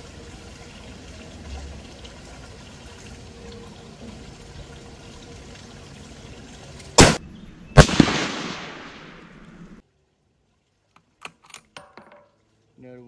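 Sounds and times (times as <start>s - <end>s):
rifle shots cracking: 7.0s - 7.2s, 7.8s - 9.5s
gunshot echo: 7.0s - 9.4s.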